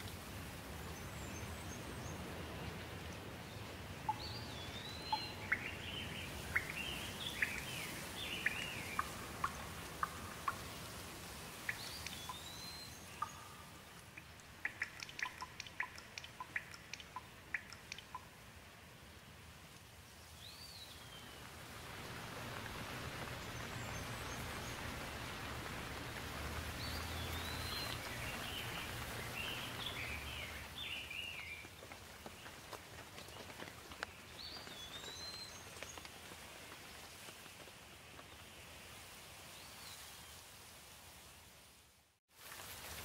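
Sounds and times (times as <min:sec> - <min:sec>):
rain falling on leaves: 0:00.0 - 0:43.0
small bird chirping: 0:04.1 - 0:10.7, 0:11.6 - 0:18.3.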